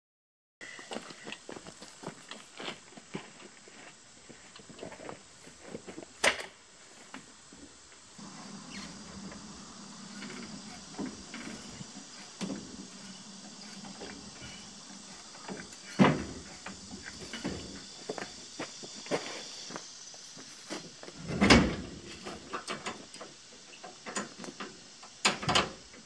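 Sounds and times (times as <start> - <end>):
faint hum: 3.1 - 22.6.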